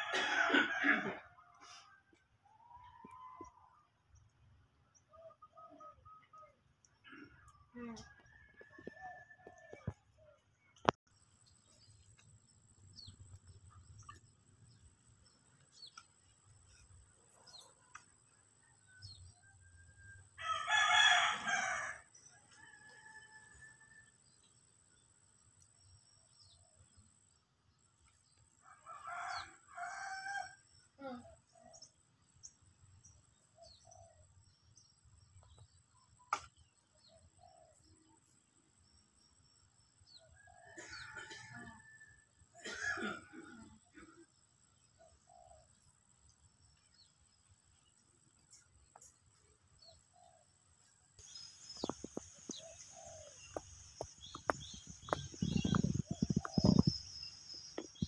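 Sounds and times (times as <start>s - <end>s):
rooster crowing: 0.0s - 1.9s, 19.1s - 24.0s, 28.7s - 30.6s
faint bird chirps: 5.0s - 10.9s, 48.5s - 58.0s.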